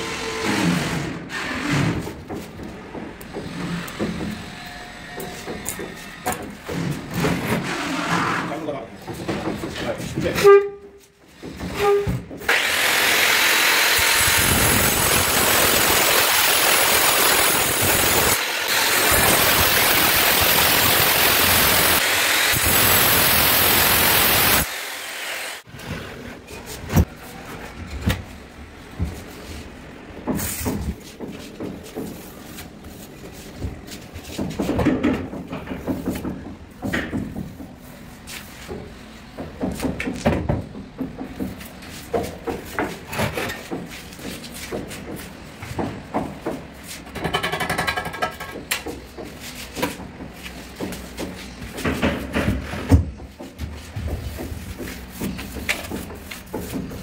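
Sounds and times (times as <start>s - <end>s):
angle grinder whine: 12.5s - 25.6s.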